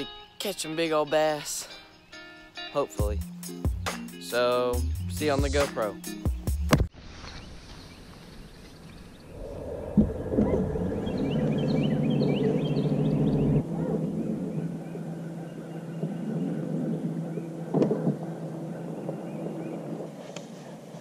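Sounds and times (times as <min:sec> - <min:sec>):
birds chirping: 0:00.0 - 0:20.8
low rumble: 0:09.2 - 0:20.0.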